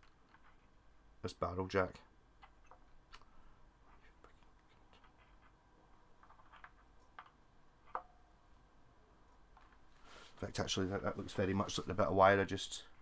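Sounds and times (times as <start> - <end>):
small clicks and scratches of wiring: 0.0 - 0.8, 3.9 - 8.1.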